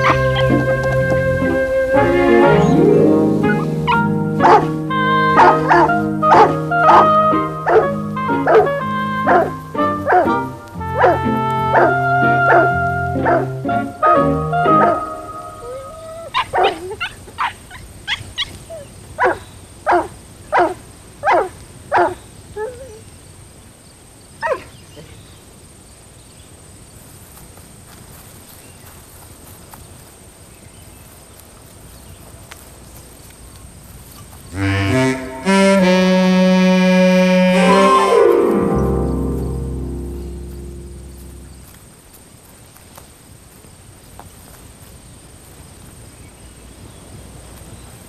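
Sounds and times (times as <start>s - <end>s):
keyboard music: 0.0s - 16.1s, 34.6s - 41.7s
dog barking: 3.5s - 4.7s, 5.4s - 7.1s, 7.7s - 10.4s, 11.0s - 11.2s, 11.8s - 13.5s, 16.4s - 18.2s, 19.2s - 22.2s, 24.4s - 24.7s.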